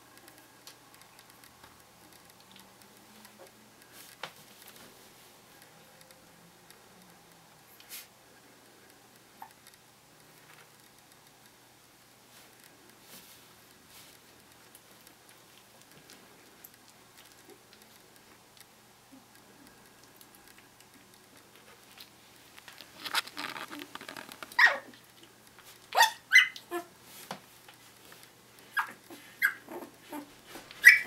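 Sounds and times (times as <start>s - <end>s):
puppies squeaking and whimpering: 26.0s - 26.9s, 28.7s - 31.0s.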